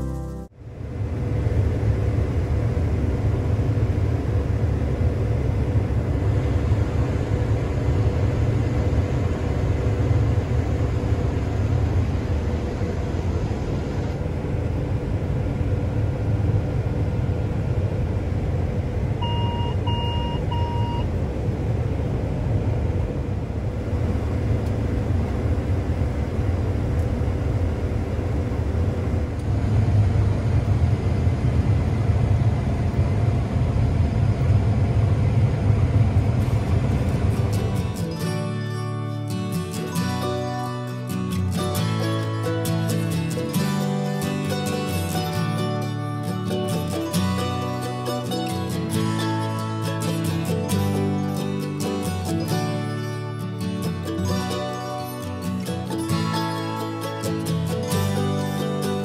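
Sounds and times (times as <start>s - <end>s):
combine harvester drone: 0.0s - 59.0s
short electronic beeps: 19.2s - 21.1s.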